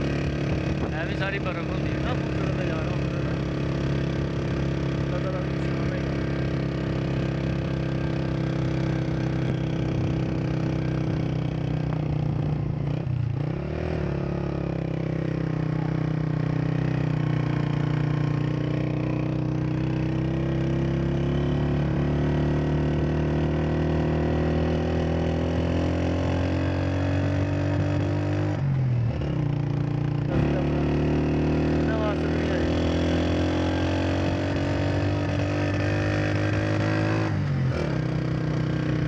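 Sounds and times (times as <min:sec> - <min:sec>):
motorcycle engine running: 0:00.0 - 0:39.0.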